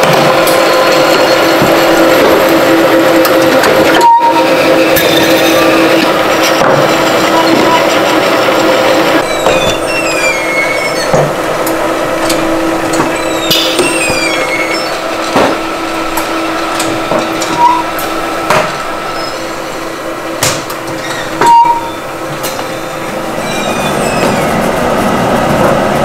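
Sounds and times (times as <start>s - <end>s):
machinery humming: 0.0s - 26.0s
high squeaks: 3.2s - 8.2s, 9.2s - 18.2s, 19.0s - 19.7s, 20.9s - 25.2s
sharp clanks and knocks: 6.0s - 7.8s, 9.2s - 9.9s, 11.0s - 18.9s, 20.4s - 22.7s.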